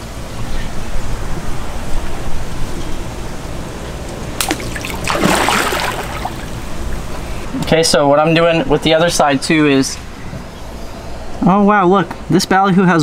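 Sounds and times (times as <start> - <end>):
fish splashing at water surface: 4.4 - 7.4.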